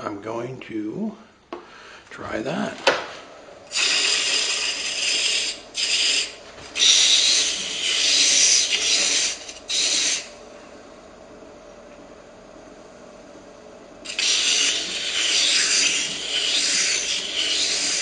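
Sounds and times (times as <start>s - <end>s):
faint steady hum: 0.0s - 18.0s
sandpaper hissing on wood: 3.7s - 10.3s, 14.1s - 18.0s.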